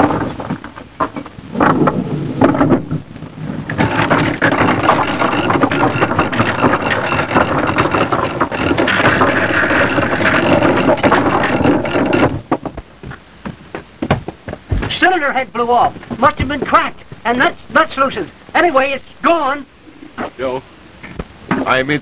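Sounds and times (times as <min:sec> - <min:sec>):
boat engine clattering: 0:00.0 - 0:12.8.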